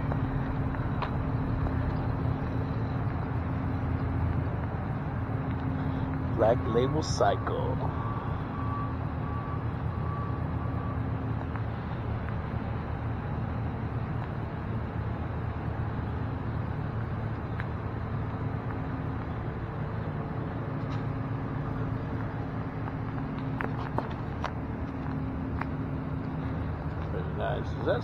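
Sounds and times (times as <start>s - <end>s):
car engine rumble: 0.0s - 28.0s
road noise: 0.0s - 28.0s.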